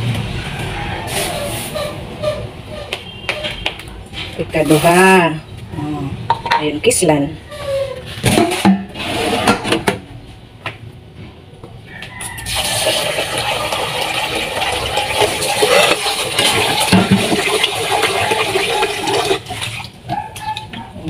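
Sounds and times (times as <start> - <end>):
metal pots clattering in sink: 6.3 - 6.8, 7.7 - 10.0, 12.5 - 20.9
tap running into metal pot: 13.4 - 17.8.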